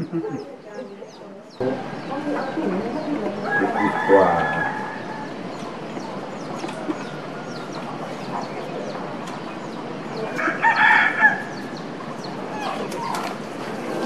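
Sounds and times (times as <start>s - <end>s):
rooster crowing: 3.4s - 5.4s, 10.4s - 11.6s.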